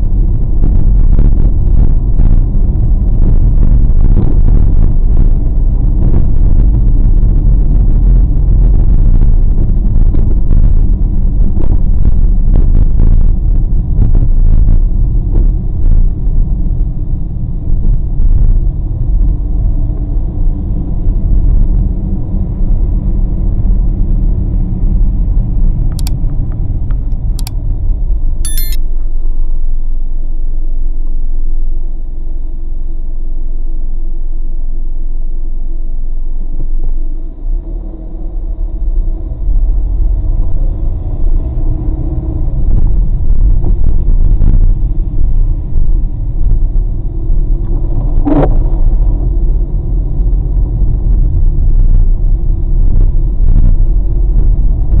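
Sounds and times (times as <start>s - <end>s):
chime: 28.5s - 28.8s
short clicks: 28.5s - 28.8s.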